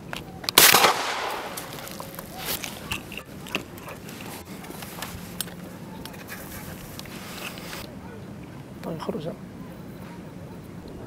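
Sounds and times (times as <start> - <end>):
scattered clicks and crackles: 0.0 - 7.9.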